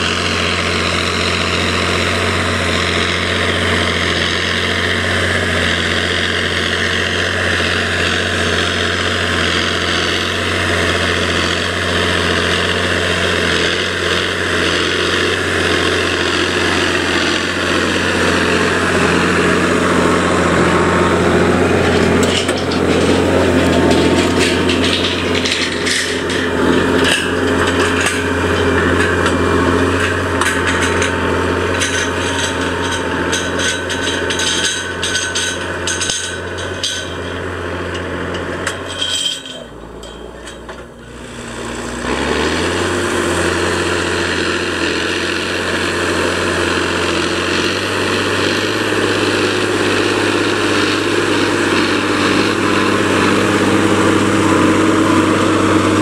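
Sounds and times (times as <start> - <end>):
tractor diesel engine running: 0.0 - 56.0
sharp clattering knocks: 15.2 - 40.9.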